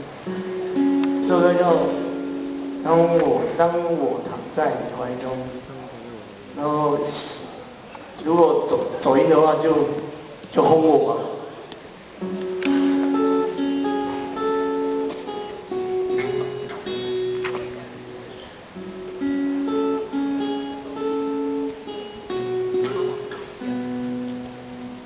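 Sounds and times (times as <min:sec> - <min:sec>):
acoustic guitar picked chords: 0:00.0 - 0:05.0, 0:12.1 - 0:25.0.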